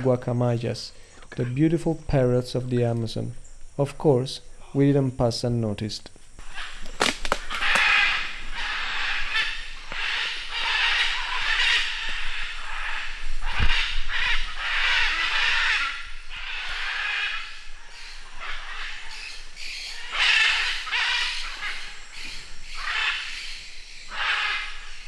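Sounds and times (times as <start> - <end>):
macaws squawking: 6.4 - 25.0.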